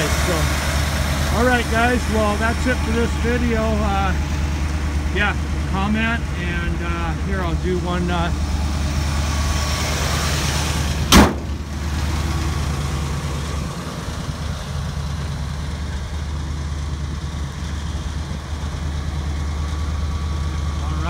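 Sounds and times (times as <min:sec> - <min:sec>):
truck engine idling: 0:00.0 - 0:21.0
truck hood slamming: 0:11.1 - 0:11.7.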